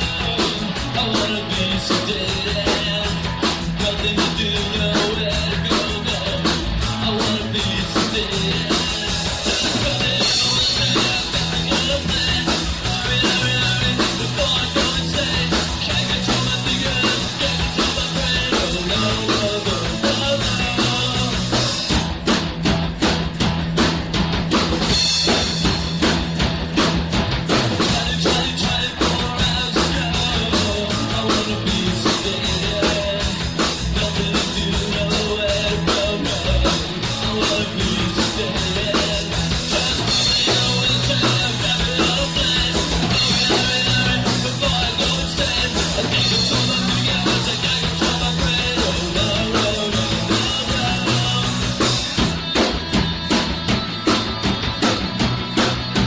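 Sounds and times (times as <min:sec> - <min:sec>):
punk rock band playing live: 0:00.0 - 0:56.0.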